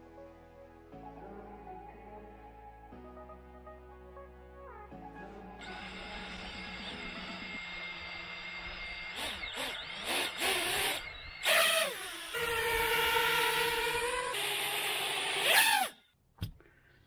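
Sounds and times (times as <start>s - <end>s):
drone motors whining: 5.6s - 16.1s.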